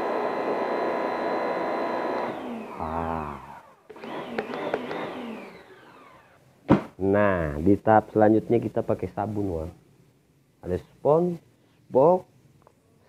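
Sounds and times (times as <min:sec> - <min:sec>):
electric motor whining: 0:00.0 - 0:06.4.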